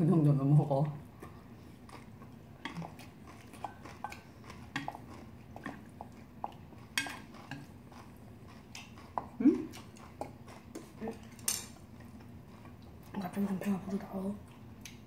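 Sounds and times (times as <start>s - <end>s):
utensils clinking on steel bowls: 7.0s - 7.7s, 10.8s - 11.8s.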